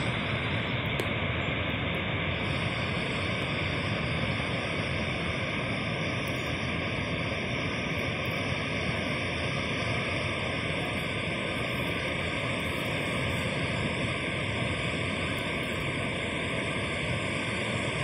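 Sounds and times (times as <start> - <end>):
waterfall roaring: 7.2 - 17.1.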